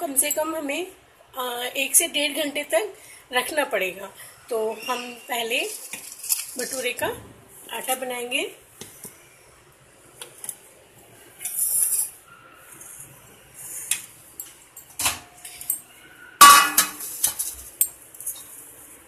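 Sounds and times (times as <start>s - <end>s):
ringing metal clank: 16.4s - 17.0s
metal bowls clinking on stone: 16.4s - 18.0s.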